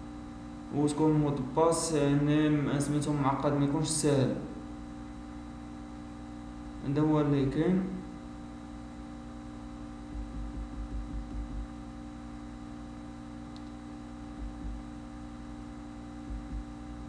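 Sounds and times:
electrical mains hum: 0.0s - 17.0s
soft low bumps: 10.0s - 11.8s, 14.2s - 15.2s, 16.2s - 17.0s.

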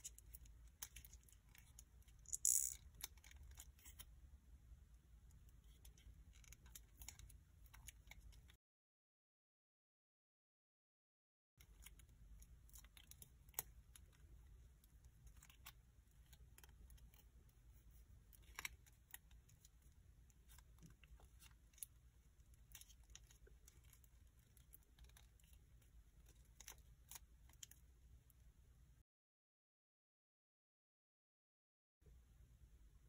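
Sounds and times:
low steady hum: 0.0s - 8.6s, 11.6s - 29.0s, 32.1s - 33.0s
paper crinkling and clicking: 18.2s - 27.8s.

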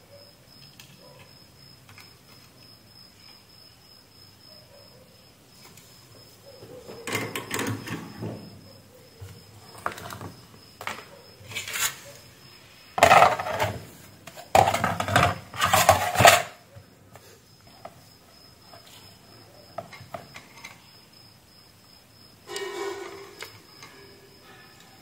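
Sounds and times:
parts clattering on a workbench: 6.6s - 8.5s, 9.2s - 12.0s, 13.0s - 18.0s, 19.8s - 20.9s, 22.5s - 25.0s.

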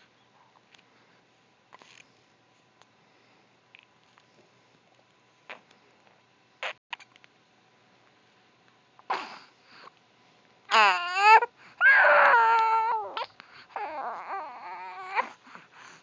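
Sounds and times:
baby crying: 10.7s - 15.3s.

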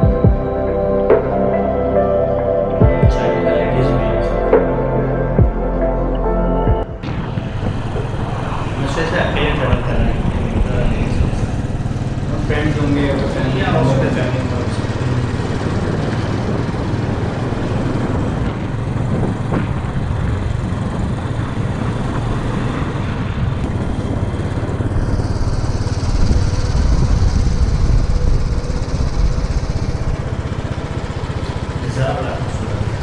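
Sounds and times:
road noise: 0.0s - 33.0s
vehicle engine: 0.0s - 33.0s.

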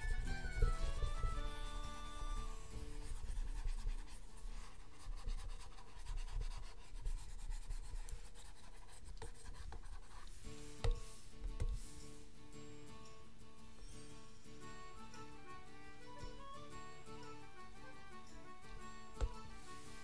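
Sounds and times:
concertina music: 0.0s - 3.6s, 13.2s - 20.0s
stylus tapping on drawing tablet: 10.8s - 11.9s, 19.2s - 19.4s.

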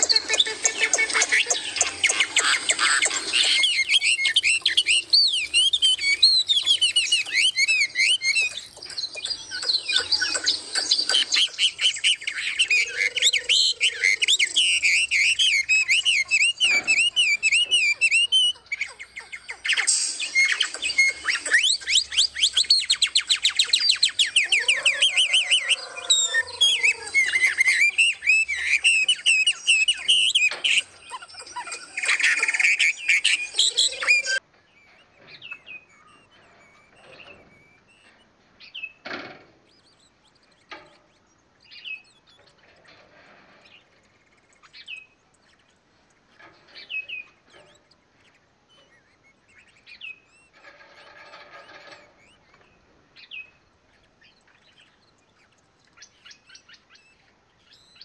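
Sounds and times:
lower arching bird call: 0.0s - 34.4s
songbirds chirping and twittering: 0.0s - 58.0s.

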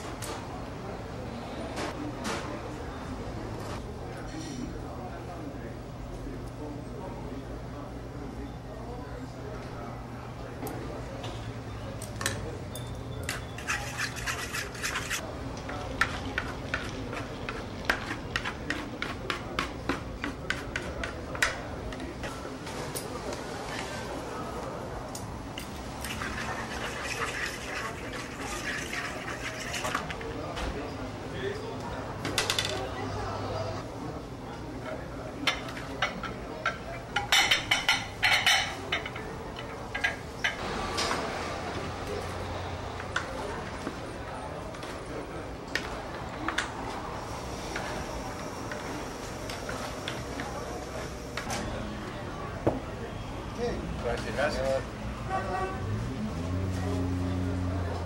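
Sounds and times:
utensil scraping wooden bowl: 13.3s - 15.2s, 16.0s - 21.2s, 26.0s - 30.2s.

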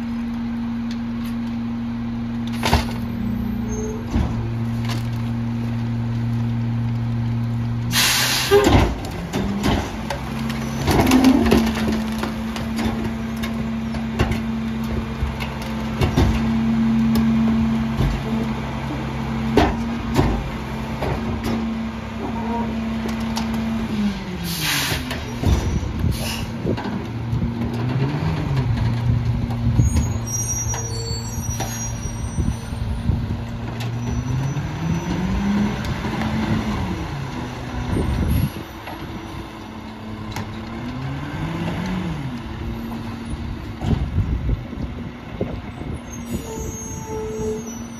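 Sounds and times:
garbage truck engine: 0.0s - 47.9s
short air hisses: 8.0s - 8.6s.

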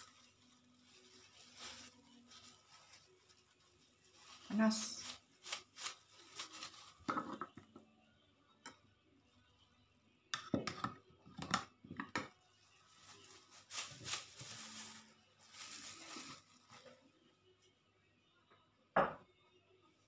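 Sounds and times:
soft rustling: 0.0s - 7.1s.

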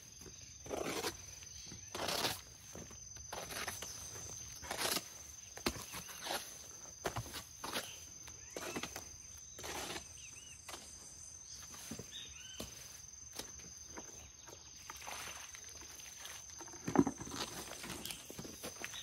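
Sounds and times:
hoe scraping wet mortar: 0.2s - 11.2s, 14.8s - 19.0s
bird chirps: 10.1s - 12.9s.

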